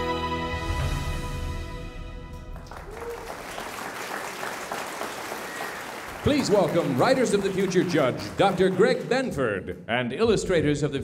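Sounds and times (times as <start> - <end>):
audience applause: 2.5 - 9.3.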